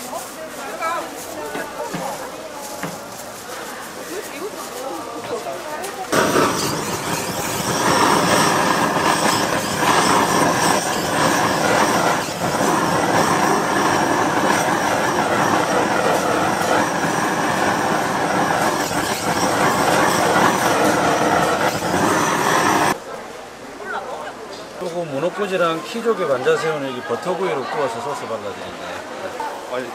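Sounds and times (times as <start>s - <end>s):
blowtorch flame hissing: 6.1s - 23.0s.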